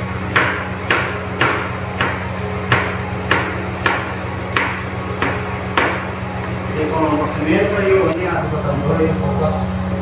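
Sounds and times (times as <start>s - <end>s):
low hum: 0.0s - 10.0s
knife chopping on plastic board: 0.4s - 6.0s.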